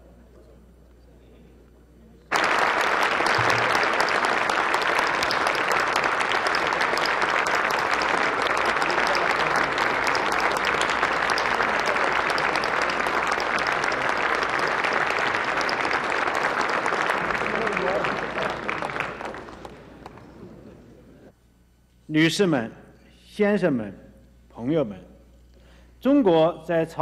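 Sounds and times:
large crowd applauding: 0:02.3 - 0:21.0.

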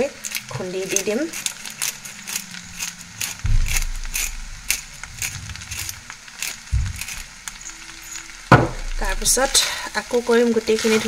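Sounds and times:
peppercorns crunching: 0:00.0 - 0:11.0
low thump: 0:03.4 - 0:07.5, 0:08.5 - 0:09.5.

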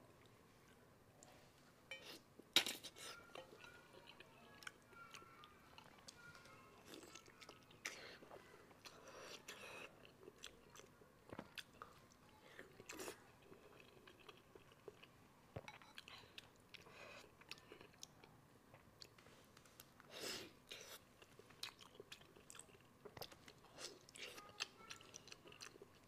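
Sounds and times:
person chewing: 0:06.8 - 0:26.0.

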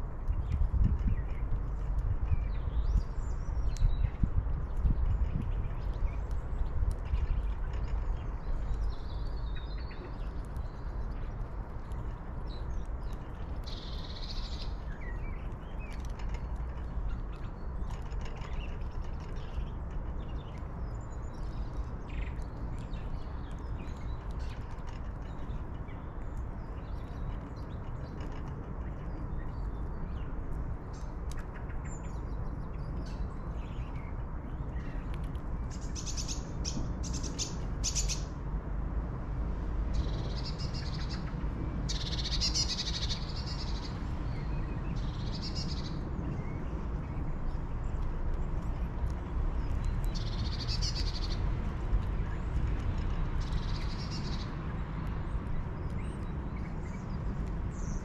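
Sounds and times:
steady low rumble: 0:00.0 - 0:58.0
bird chirps and calls: 0:35.7 - 0:38.3, 0:41.9 - 0:46.6, 0:49.6 - 0:51.4, 0:53.4 - 0:54.6.

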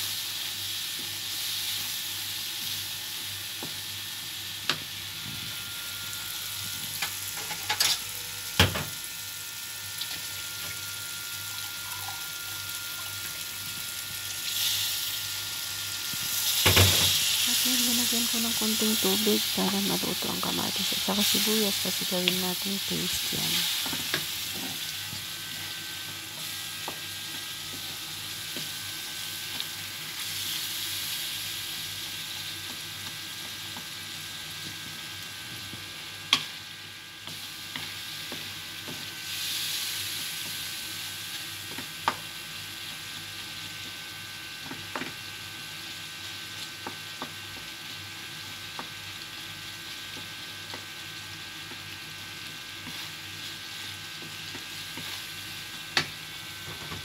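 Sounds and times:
masala sizzling in oil: 0:00.0 - 0:57.0.

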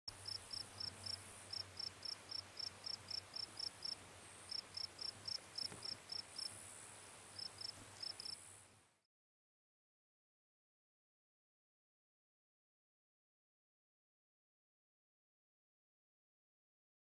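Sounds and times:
insect chirping: 0:00.1 - 0:08.7
faint high hiss: 0:00.1 - 0:09.1.

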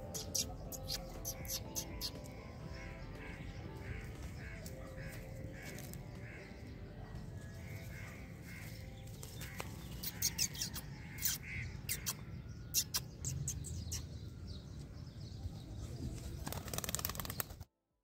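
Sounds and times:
birds chirping: 0:00.0 - 0:17.6.

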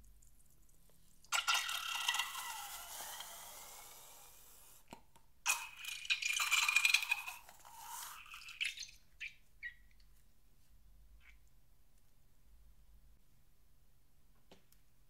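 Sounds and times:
balloon squirting with squeal: 0:01.4 - 0:04.9.

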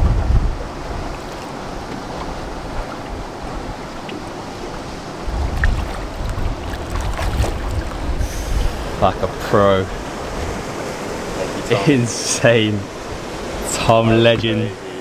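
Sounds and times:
wind rumbling on microphone: 0:00.0 - 0:11.7
water lapping against boat: 0:00.0 - 0:15.0.

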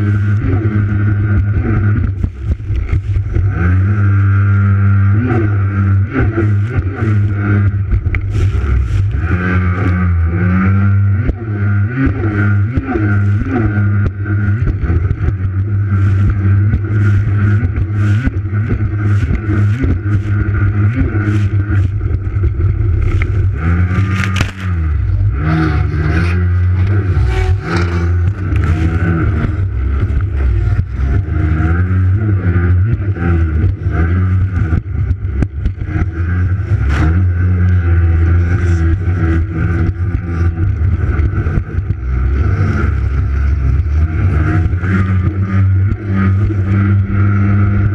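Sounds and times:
jet ski engine revving: 0:00.0 - 0:47.9
water splashing against hull: 0:00.1 - 0:04.6, 0:06.4 - 0:10.3, 0:13.2 - 0:25.5.

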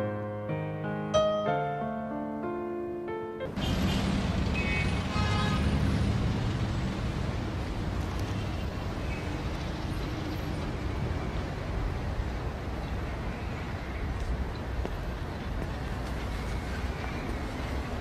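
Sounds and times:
distant city traffic rumble: 0:03.5 - 0:18.0.

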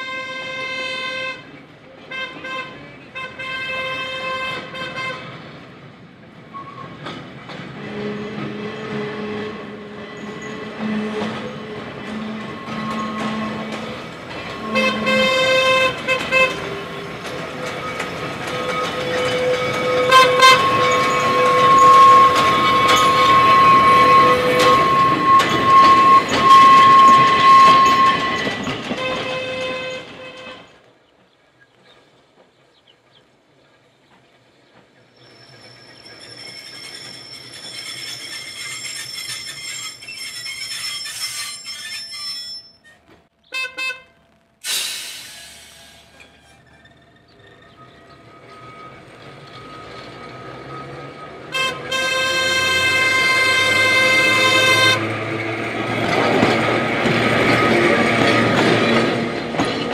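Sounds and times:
locomotive horn toots: 0:00.0 - 0:05.4, 0:07.8 - 0:30.8, 0:43.5 - 0:44.3, 0:48.4 - 0:55.4
locomotive approaching: 0:00.0 - 0:59.9.

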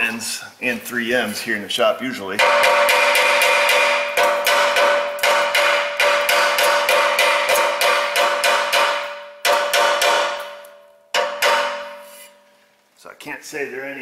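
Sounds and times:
hammer blows on metal pipe: 0:02.4 - 0:12.4.

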